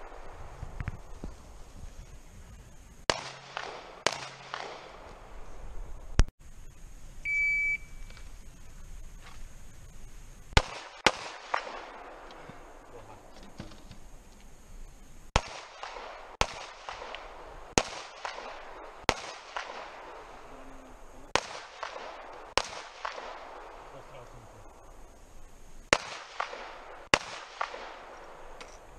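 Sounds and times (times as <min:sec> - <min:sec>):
handgun shots with echo: 0:03.1 - 0:05.1
shot timer beep: 0:07.2 - 0:08.2.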